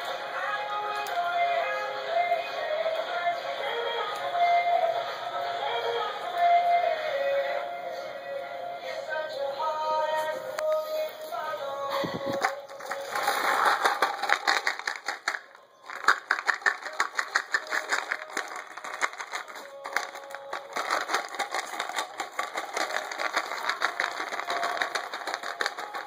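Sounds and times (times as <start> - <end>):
plastic bottle crackling and clicking: 11.9 - 26.0.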